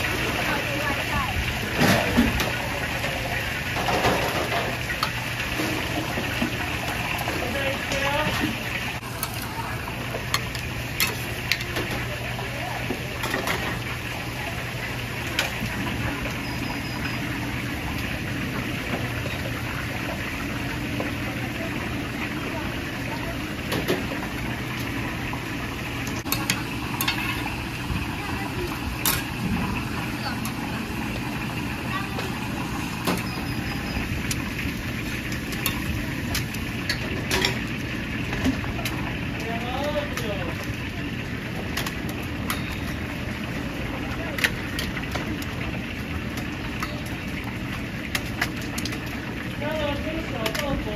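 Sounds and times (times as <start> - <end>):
low rumble of frying: 0.0 - 50.9
metal utensils clinking on pan: 10.3 - 12.1, 26.2 - 27.5, 35.2 - 37.6, 41.8 - 43.0.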